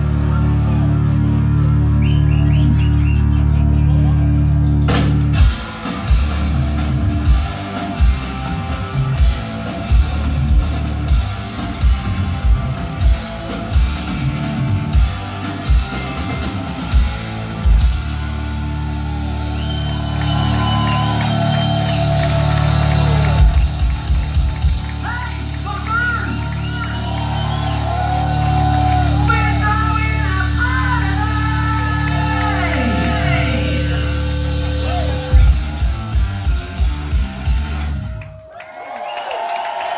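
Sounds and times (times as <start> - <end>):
hard rock band playing: 0.0 - 38.4
high sliding guitar notes: 30.6 - 38.0.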